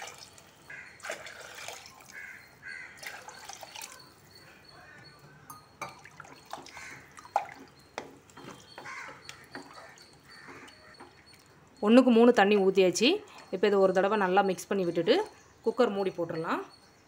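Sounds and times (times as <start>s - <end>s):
water pouring and splashing: 0.0s - 2.2s, 3.0s - 4.0s, 6.0s - 7.8s.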